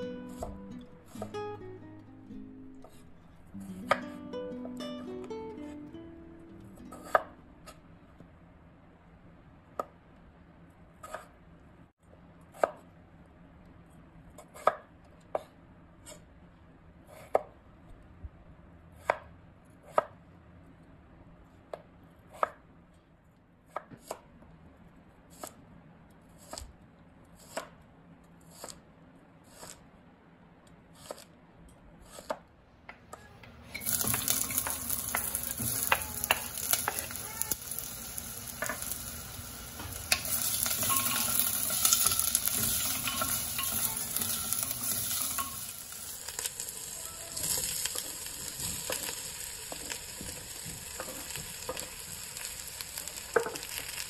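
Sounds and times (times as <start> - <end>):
knife chopping on wooden board: 3.9 - 4.1, 7.0 - 7.8, 11.0 - 11.4
onion sizzling in hot oil: 33.6 - 54.0.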